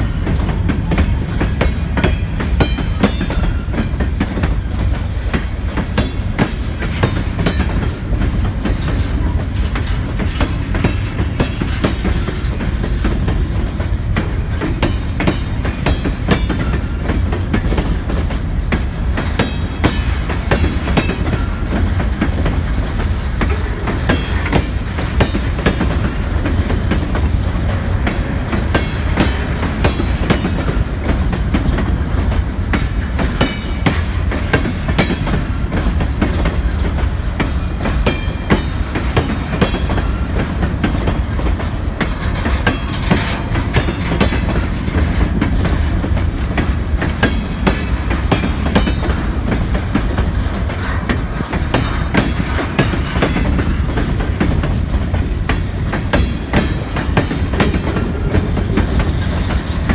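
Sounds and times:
freight train wheels rumbling: 0.0 - 59.9
train wheels clicking and clacking: 0.0 - 59.9.

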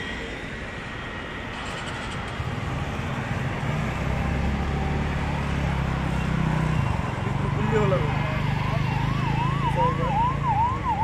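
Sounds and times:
heavy vehicle engine drone: 0.0 - 11.0
road traffic: 0.0 - 11.0.

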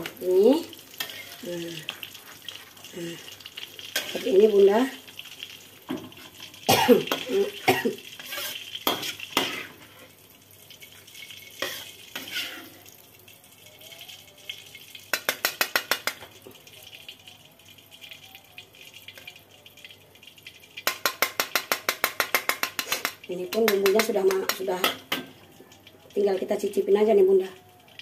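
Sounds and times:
frying hiss: 0.0 - 28.0
metal spatula scraping a wok: 1.0 - 2.8, 8.1 - 10.2, 11.2 - 12.8, 22.2 - 24.6.

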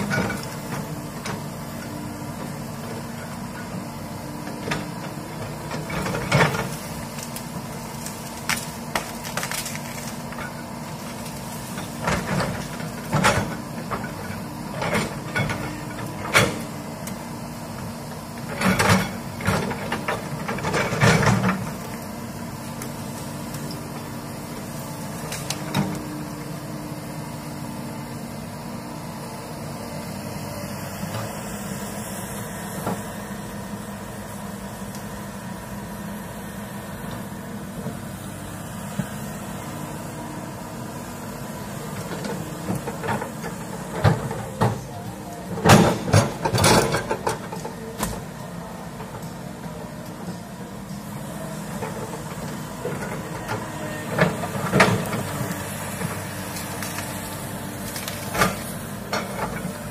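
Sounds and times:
excavator diesel engine running: 0.0 - 59.9
branches cracking and snapping: 6.6 - 11.8, 56.4 - 58.8.

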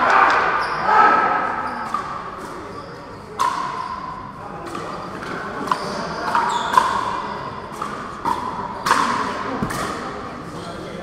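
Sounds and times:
ball bouncing on court: 7.7 - 10.2.

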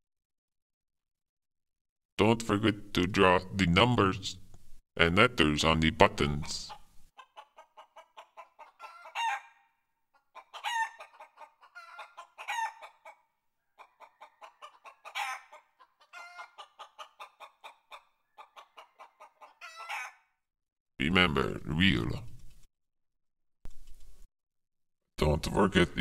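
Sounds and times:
chicken clucking: 6.2 - 20.2
chicken squawks: 6.6 - 20.4.

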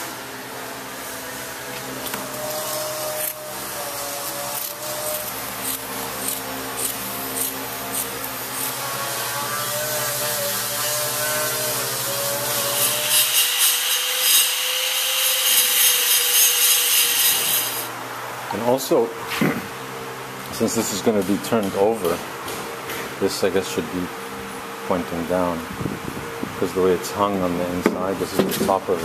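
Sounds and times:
machine hum: 0.0 - 13.2
angle grinder grinding metal pipe: 0.9 - 17.9.

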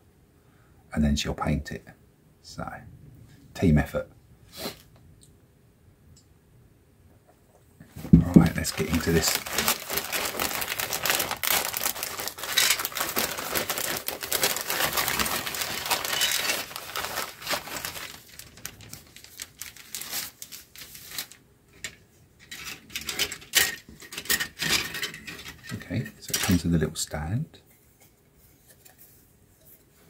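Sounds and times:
plastic bag crinkling: 8.2 - 21.4.

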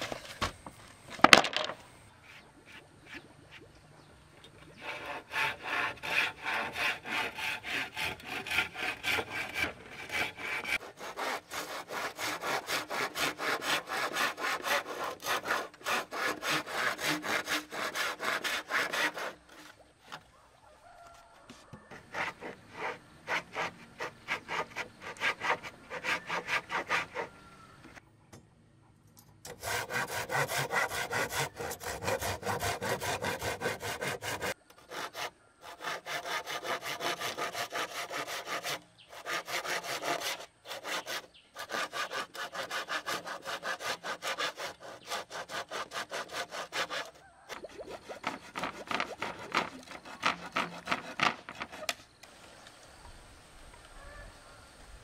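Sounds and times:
hand saw cutting wood: 4.6 - 20.2, 21.9 - 27.6, 29.4 - 52.1.

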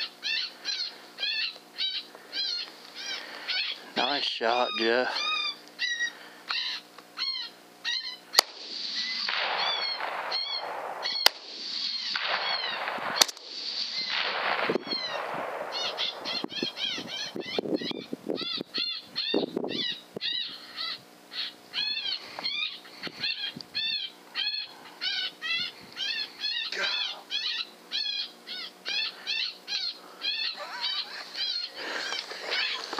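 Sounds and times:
coyote yelping and howling: 0.0 - 13.0, 13.9 - 32.9
sharp clicks: 12.1 - 13.5.

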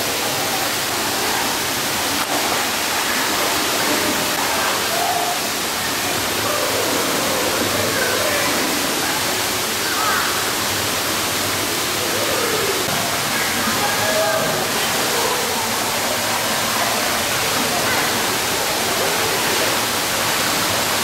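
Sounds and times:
faint voices: 0.0 - 21.0
water spraying and splashing: 0.0 - 21.0.

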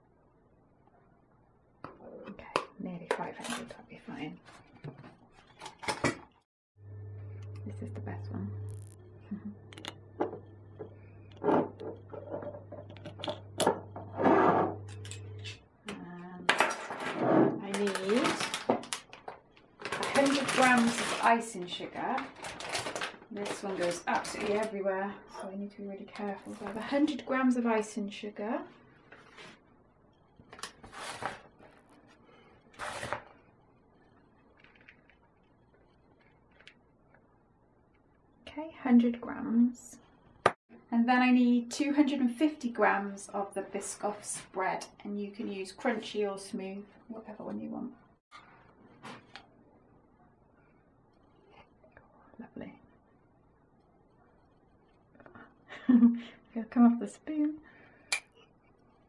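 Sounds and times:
low steady hum: 6.8 - 16.6.

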